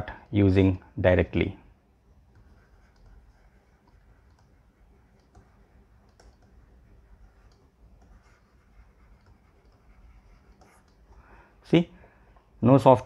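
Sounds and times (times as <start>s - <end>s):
stylus tapping on tablet: 2.2s - 11.3s.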